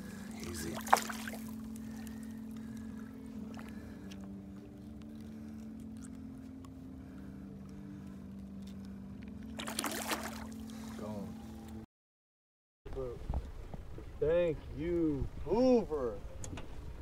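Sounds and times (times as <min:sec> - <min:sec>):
water splashing: 0:00.4 - 0:02.1, 0:09.6 - 0:10.7.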